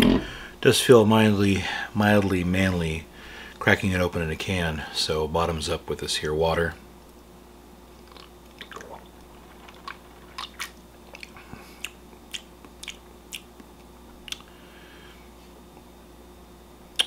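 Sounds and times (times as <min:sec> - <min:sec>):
wet mouth clicks and lip smacks: 0:10.4 - 0:14.5.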